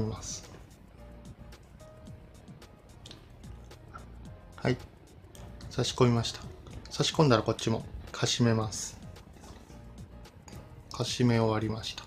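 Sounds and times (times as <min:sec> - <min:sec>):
quiet background music: 0:00.0 - 0:12.0.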